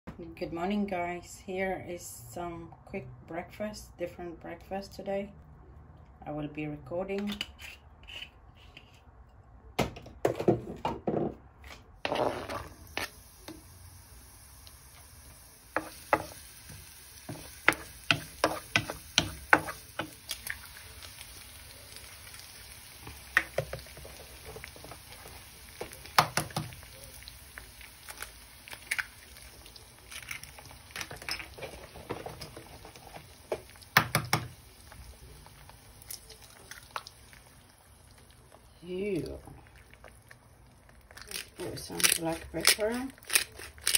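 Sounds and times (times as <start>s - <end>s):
onion frying in oil: 12.0s - 43.9s
eggs cracking on a pan: 14.6s - 43.9s.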